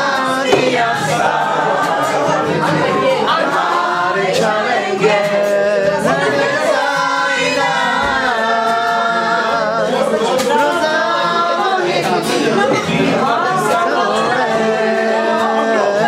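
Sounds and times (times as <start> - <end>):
acoustic guitar: 0.0 - 16.0
people singing together: 0.0 - 16.0
hand clapping: 10.3 - 10.9.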